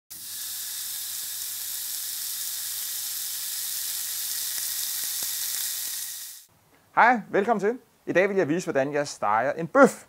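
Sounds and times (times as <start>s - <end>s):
steak sizzling on grill: 0.1s - 6.5s.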